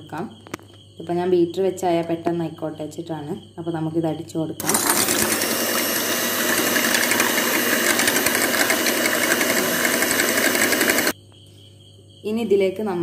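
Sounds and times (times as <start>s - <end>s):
electric hand mixer whisking eggs: 4.6s - 11.2s.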